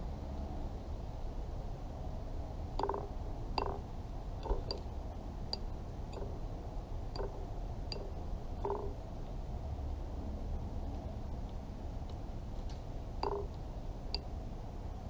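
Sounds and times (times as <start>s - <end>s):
low background hum: 0.0s - 15.0s
beak pecking at saucer: 4.4s - 4.9s, 7.2s - 9.0s, 13.2s - 14.3s.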